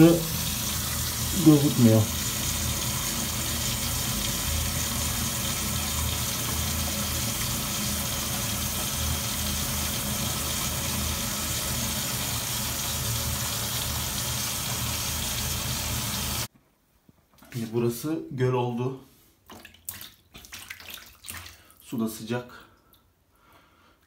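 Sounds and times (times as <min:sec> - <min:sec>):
shower water rushing: 0:00.0 - 0:16.5.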